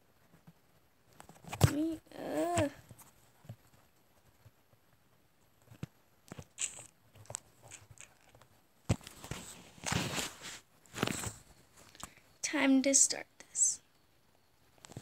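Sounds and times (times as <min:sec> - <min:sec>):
rustling: 0:00.0 - 0:12.3
person speaking: 0:01.6 - 0:02.8, 0:12.4 - 0:13.8.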